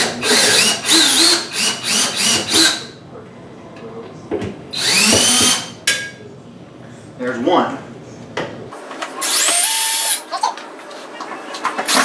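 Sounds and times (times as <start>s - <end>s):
cordless drill whining: 0.0s - 2.8s, 4.8s - 5.7s, 9.2s - 10.2s.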